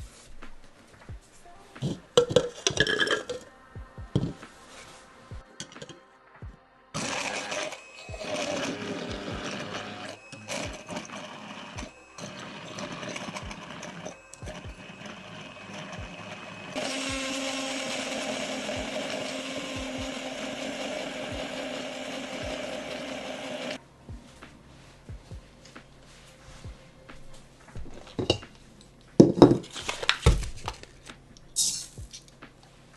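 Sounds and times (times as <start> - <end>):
immersion blender running: 7.0 - 23.8.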